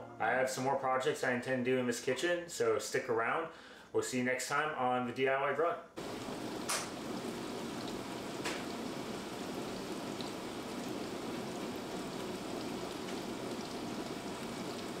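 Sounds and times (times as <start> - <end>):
water spraying inside dishwasher: 6.0 - 15.0.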